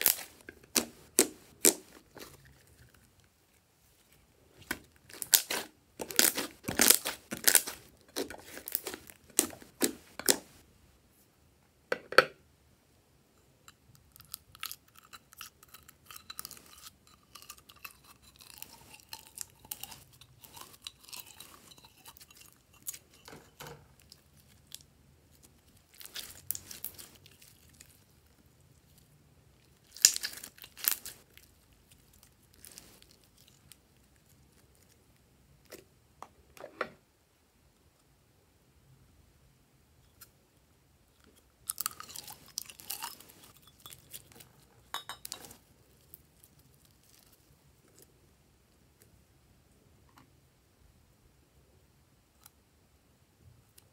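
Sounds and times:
slime crackling and popping: 0.0s - 2.4s, 4.7s - 10.5s, 25.4s - 28.1s, 29.7s - 31.4s
slime squelching: 0.0s - 10.6s, 14.2s - 34.8s.

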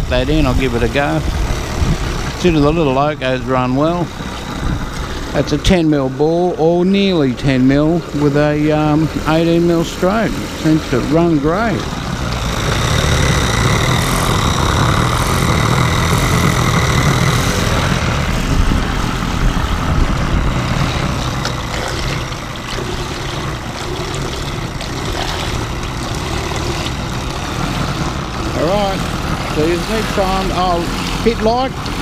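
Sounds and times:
model steam engine running: 0.0s - 32.0s
propeller churning water: 0.0s - 32.0s
thin high whine: 9.4s - 23.8s.

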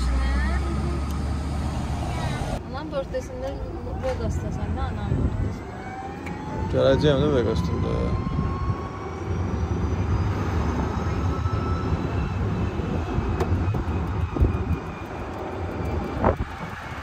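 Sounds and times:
wind on microphone: 12.0s - 17.0s.

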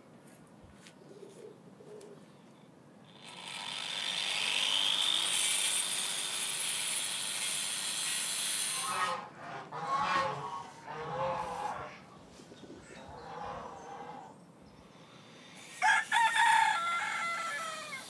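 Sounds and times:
circular saw cutting wood: 3.1s - 9.3s.

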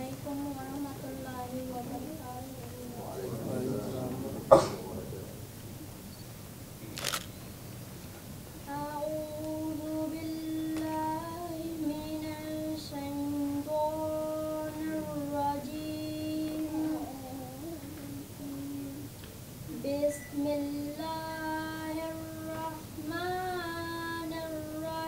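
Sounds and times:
child singing held notes: 8.7s - 19.1s.

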